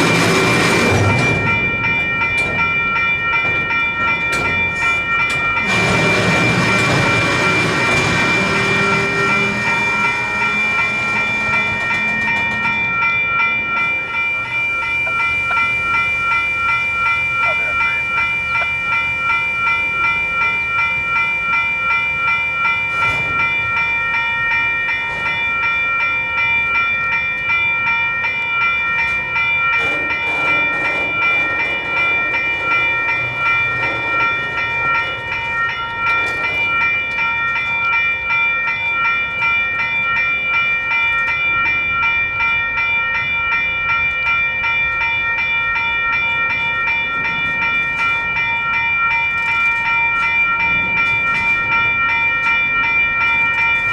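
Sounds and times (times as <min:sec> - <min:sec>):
freight train rumble: 0:00.0 - 0:53.9
railroad crossing bells ringing: 0:00.0 - 0:53.9.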